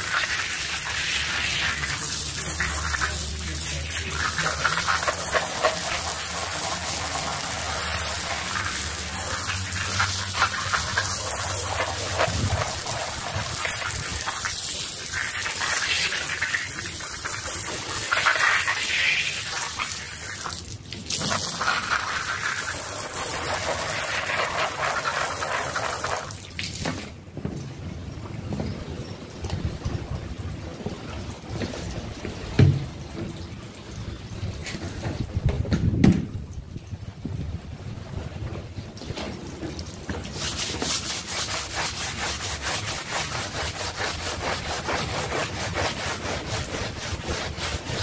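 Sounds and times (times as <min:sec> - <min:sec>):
water spray hissing on rug: 0:00.0 - 0:26.9, 0:39.8 - 0:48.0.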